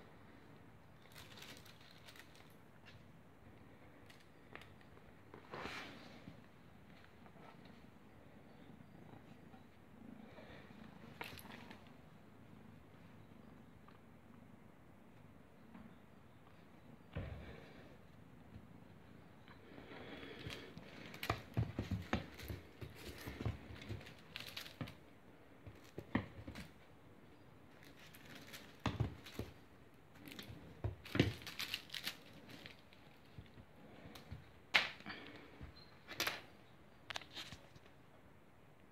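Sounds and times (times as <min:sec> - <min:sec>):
paws scrabbling on wooden floor: 0:20.5 - 0:25.0.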